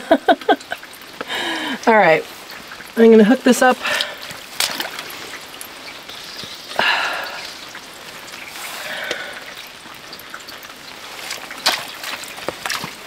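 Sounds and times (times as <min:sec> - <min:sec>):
rain pattering: 0:00.0 - 0:13.0.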